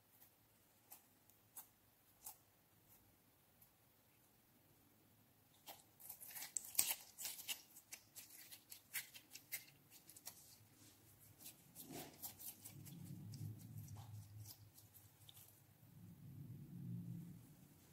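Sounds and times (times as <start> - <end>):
faint low rumble: 10.9 - 17.9.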